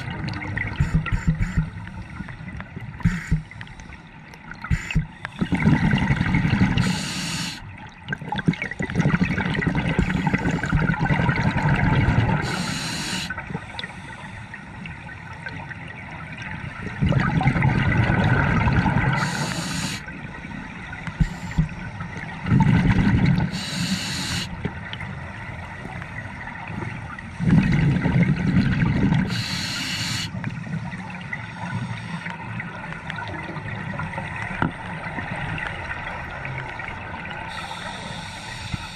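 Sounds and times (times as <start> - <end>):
underwater bubbles gurgling: 0.0 - 38.9
regulator hiss: 3.0 - 3.5, 6.8 - 7.6, 12.4 - 13.3, 19.2 - 20.1, 21.2 - 21.8, 23.5 - 24.6, 29.3 - 30.4, 37.5 - 38.9.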